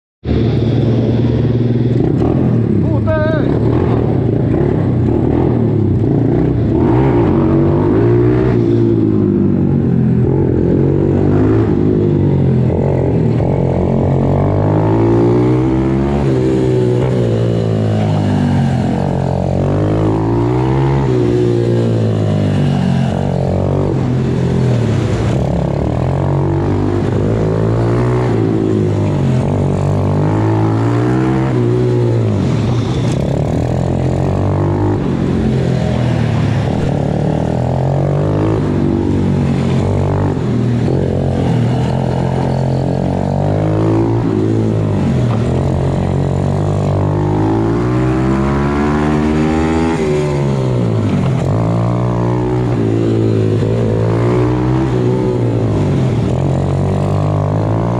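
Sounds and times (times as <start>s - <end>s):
motorbike engine revving: 0.2s - 57.9s.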